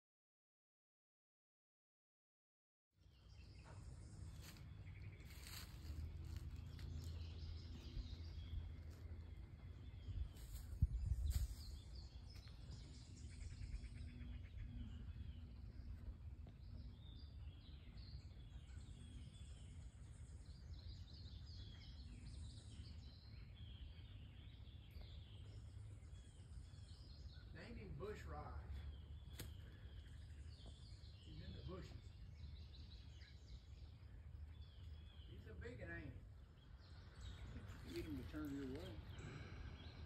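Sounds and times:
small birds chirping: 3.0 - 40.0.

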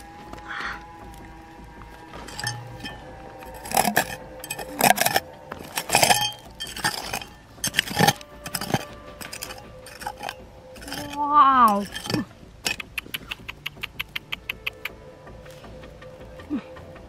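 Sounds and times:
hard objects clinking and scraping: 2.0 - 12.9.

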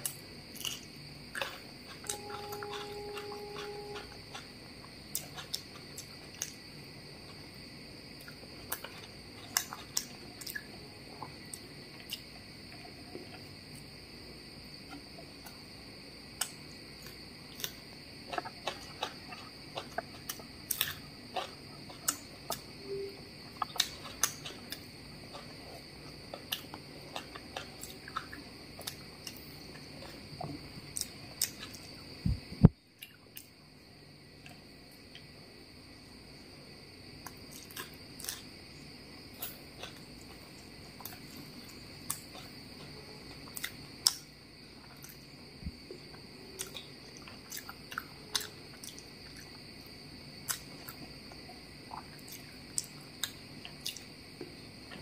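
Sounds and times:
cricket trill: 0.0 - 55.0
chewing and lip smacks: 8.2 - 12.3, 23.5 - 30.2, 46.1 - 49.6, 50.4 - 54.1.

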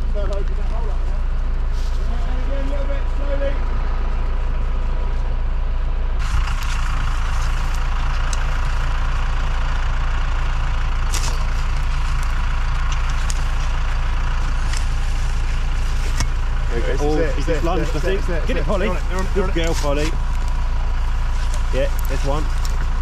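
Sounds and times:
engine idling: 0.0 - 23.0
dogs digging in soil: 11.0 - 23.0
spade scraping soil: 11.1 - 16.7.

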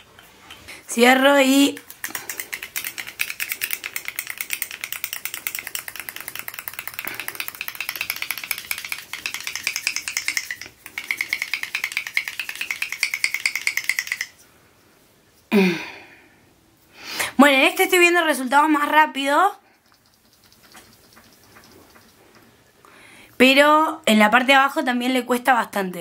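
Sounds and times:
mixing ball rattling in glass bottle: 1.6 - 14.4, 19.7 - 22.7.

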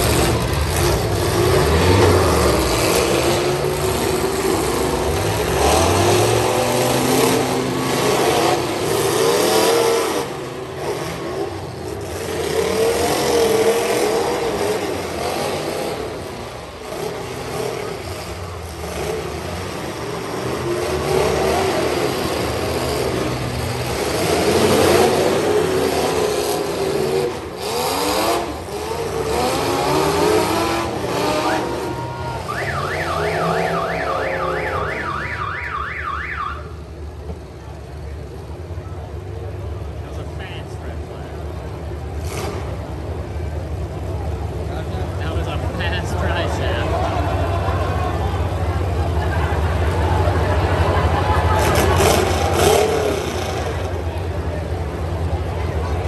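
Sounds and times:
truck engines revving: 0.0 - 56.0
noisy din: 29.9 - 36.8.

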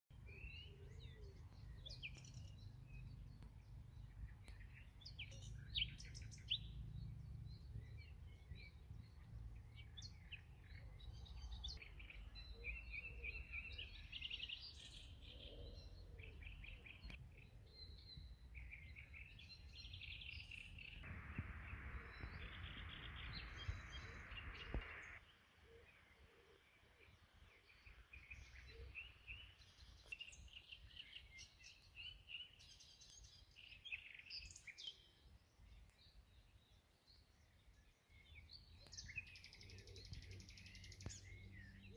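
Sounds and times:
songbirds chirping and trilling: 0.1 - 41.9
low rumble: 21.1 - 25.2
steady hiss: 21.1 - 25.2.

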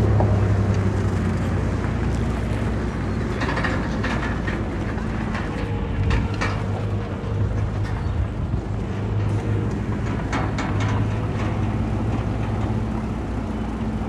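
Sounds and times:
knocks and clatters: 0.0 - 13.9
heavy machinery diesel engine: 0.0 - 14.0.

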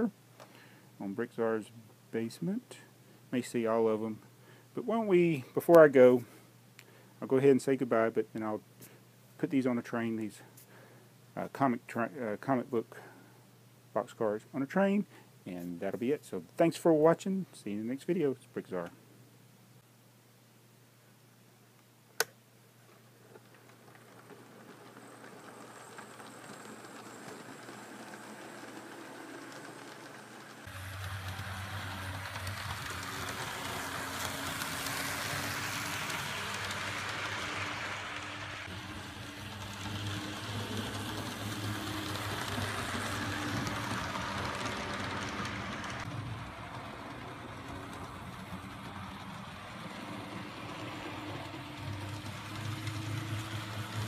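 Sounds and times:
model train rolling on track: 23.2 - 54.0.

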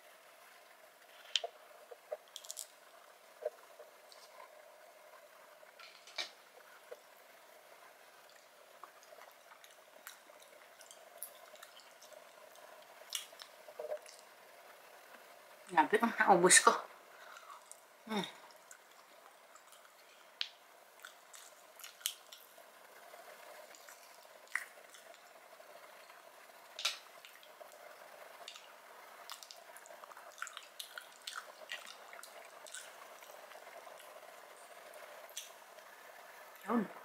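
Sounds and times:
wet chewing and smacking: 8.2 - 14.3, 18.5 - 22.6, 23.6 - 25.3, 26.8 - 27.8, 28.4 - 34.2.

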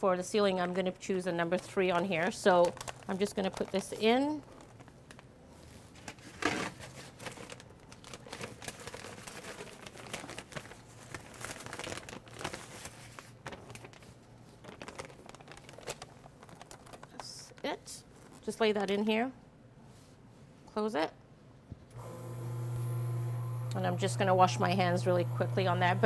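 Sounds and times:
plastic bag crinkling: 1.5 - 19.0.

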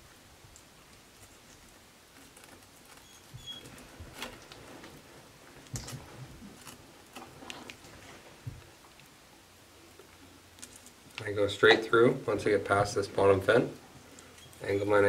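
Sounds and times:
faint high squeak: 2.9 - 3.8, 14.3 - 15.0.

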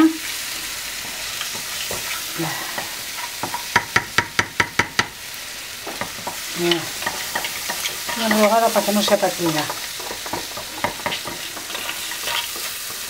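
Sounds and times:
food sizzling in a frying pan: 0.0 - 13.0
wooden spoon clacking in pan: 2.8 - 5.2, 5.8 - 13.0.

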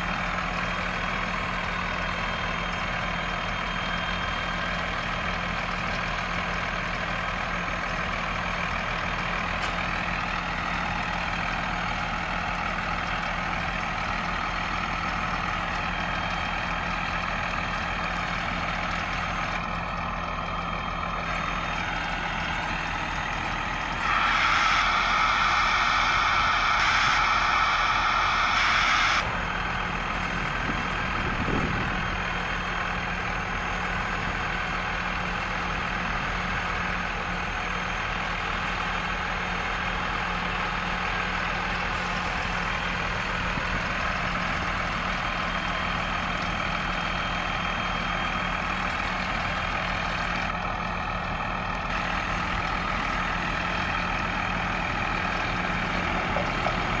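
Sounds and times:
truck engine drone: 0.0 - 57.0
rush of air through hose: 23.9 - 29.3.

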